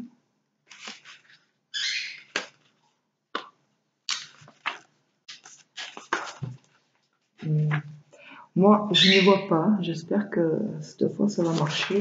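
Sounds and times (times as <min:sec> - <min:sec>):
paper rustling and flapping: 0:00.6 - 0:03.0, 0:04.1 - 0:08.0, 0:11.4 - 0:12.0.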